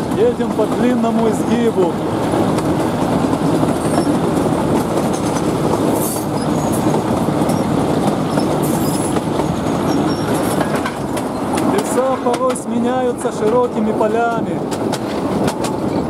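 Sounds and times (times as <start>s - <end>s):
train wheels clattering on rails: 0.0s - 16.0s
train wheel squeal: 3.8s - 4.2s, 5.1s - 7.7s, 8.3s - 11.6s.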